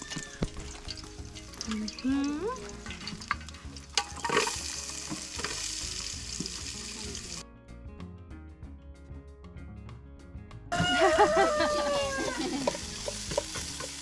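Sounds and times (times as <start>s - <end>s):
onions sizzling in hot oil: 0.0s - 7.4s, 11.5s - 14.0s.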